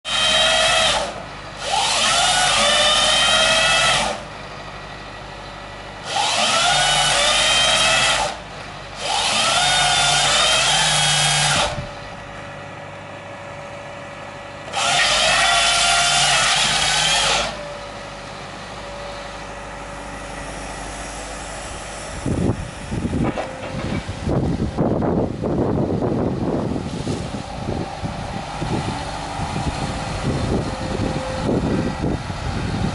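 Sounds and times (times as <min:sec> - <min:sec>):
hydraulic chain saw whining: 0:00.0 - 0:04.3, 0:06.0 - 0:08.4, 0:09.0 - 0:11.9, 0:14.6 - 0:17.9
steady machine hum: 0:17.6 - 0:32.9.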